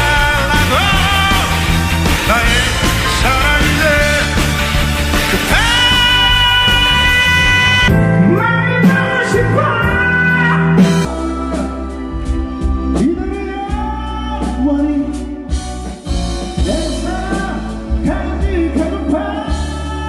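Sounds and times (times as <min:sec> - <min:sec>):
man singing into microphone: 0:00.0 - 0:04.6, 0:05.2 - 0:15.6, 0:16.6 - 0:20.0
electric guitar: 0:00.0 - 0:13.1
keyboard: 0:00.0 - 0:20.0.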